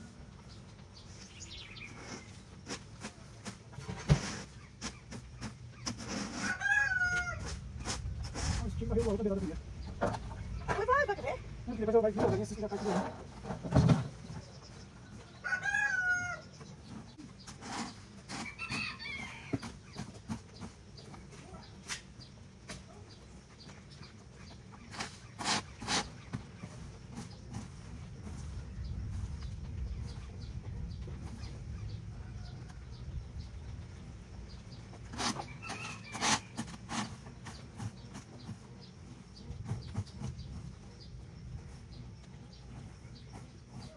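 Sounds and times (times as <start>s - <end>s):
rooster crowing: 6.4s - 7.5s, 15.4s - 16.5s.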